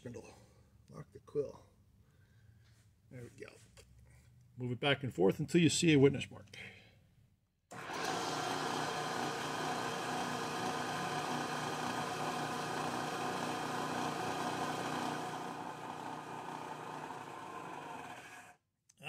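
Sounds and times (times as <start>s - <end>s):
milling machine hum: 7.7s - 18.5s.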